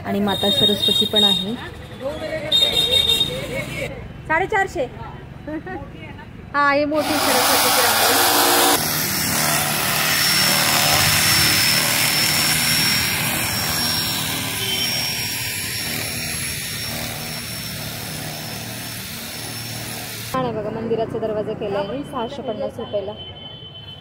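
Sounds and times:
electric power tool whining: 7.0s - 20.4s.

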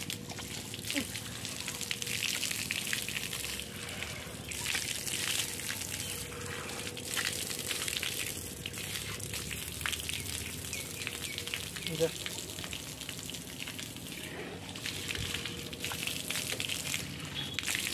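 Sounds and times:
water splashing from a tap: 0.0s - 17.9s.

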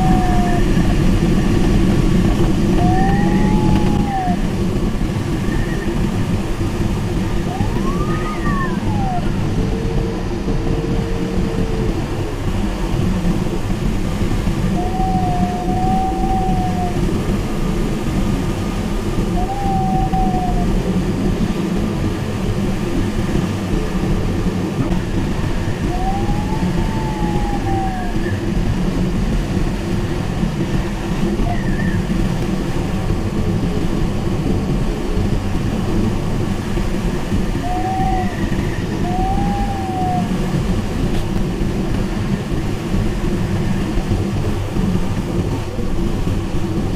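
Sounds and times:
electronic variometer tones: 0.0s - 18.2s
airflow rushing in cockpit: 0.0s - 46.9s.

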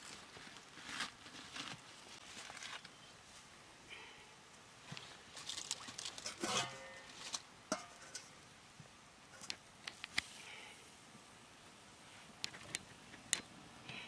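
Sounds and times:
metal lid and ladle clanging on wok: 6.2s - 7.1s, 7.7s - 8.3s.

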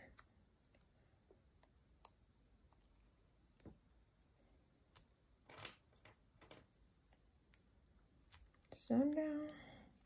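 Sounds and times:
faint clicks of paper and clips: 7.5s - 9.8s.

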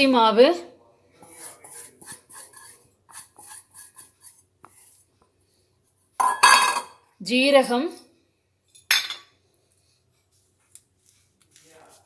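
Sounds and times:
steel bowl scrapes and taps: 1.2s - 4.8s.

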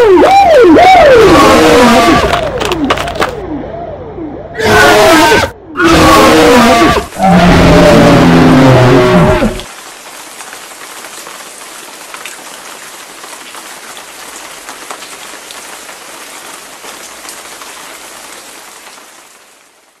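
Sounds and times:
rain-like hiss with ticks: 7.1s - 8.0s, 8.8s - 20.0s.

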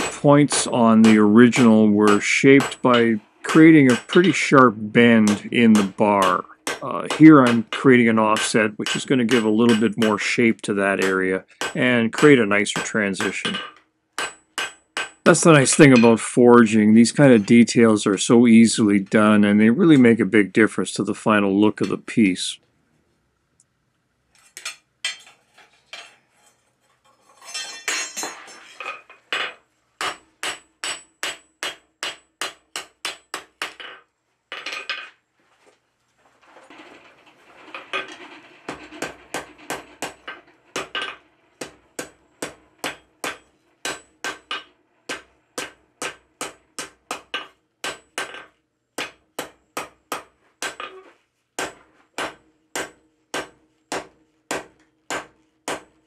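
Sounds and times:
anvil ringing: 0.0s - 10.4s, 11.0s - 16.3s
hammer striking hot steel: 0.0s - 10.4s, 11.0s - 16.2s, 30.0s - 33.8s, 38.7s - 51.0s, 51.6s - 56.0s.

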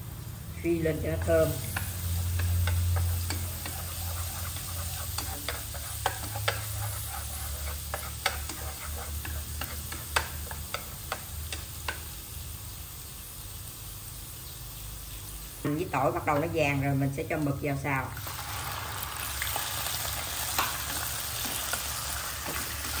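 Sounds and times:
food sizzling in hot oil: 0.0s - 23.0s
chopsticks tapping and scraping pan: 1.2s - 12.1s, 20.4s - 23.0s.

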